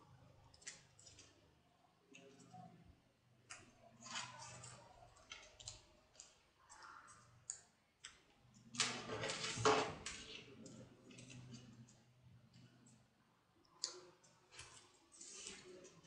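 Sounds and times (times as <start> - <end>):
paper rustling: 14.5 - 16.0.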